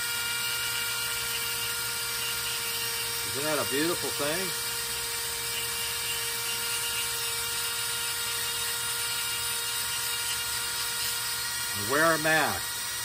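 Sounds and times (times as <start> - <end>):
rotary tool high whine: 0.0 - 13.0.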